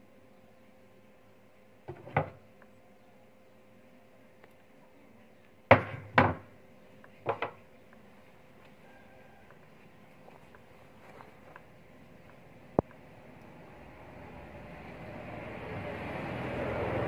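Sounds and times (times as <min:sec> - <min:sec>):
parts knocking on a workbench: 0:01.9 - 0:02.4, 0:05.7 - 0:06.5, 0:07.2 - 0:07.6.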